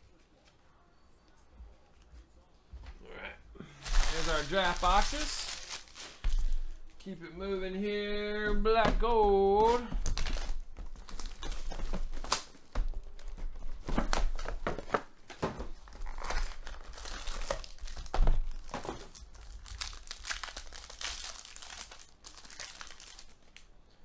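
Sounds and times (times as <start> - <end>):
foil packs crinkling and tearing: 3.8 - 6.6, 9.6 - 23.7.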